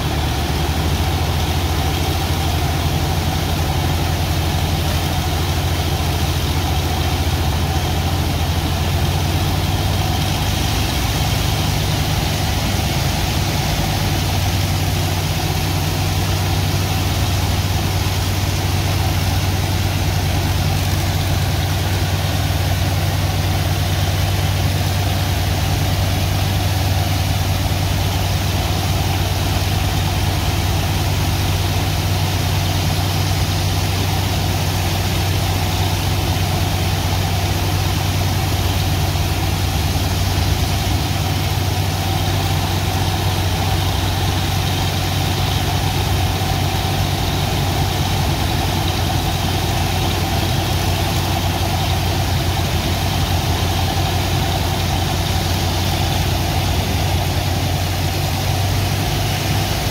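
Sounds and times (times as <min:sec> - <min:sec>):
engine-driven pumps droning: 0:00.0 - 0:59.9
high-pressure water jet blasting sand: 0:08.6 - 0:23.4.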